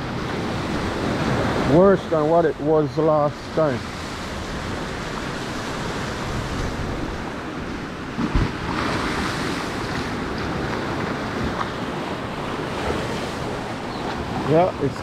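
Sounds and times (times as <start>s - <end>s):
strong wind buffeting microphone: 0.0s - 15.0s
waves washing in: 0.0s - 15.0s.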